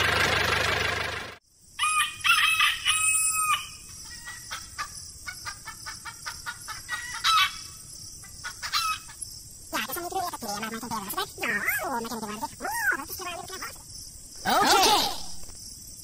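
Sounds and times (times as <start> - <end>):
rooster crowing: 1.8 - 4.5
chickens clucking: 4.0 - 9.2.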